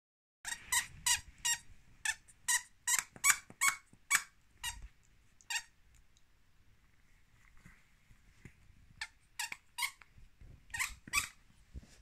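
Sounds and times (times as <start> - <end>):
squeaky toy squeaking: 0.4 - 4.8, 5.5 - 5.7, 9.0 - 10.0, 10.7 - 11.4.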